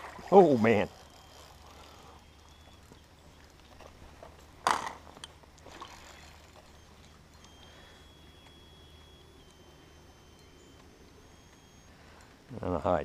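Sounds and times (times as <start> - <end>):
pole clattering on rocky gravel: 3.6 - 5.8.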